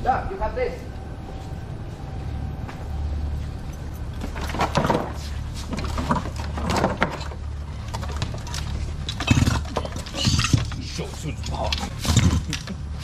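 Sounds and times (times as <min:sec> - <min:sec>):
steady low hum: 0:00.0 - 0:13.0
hard objects knocking and clattering: 0:04.2 - 0:12.9.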